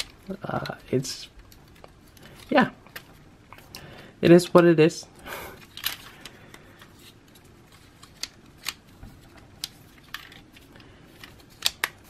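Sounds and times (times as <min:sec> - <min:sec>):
plastic toy parts clicking: 0:09.6 - 0:12.0.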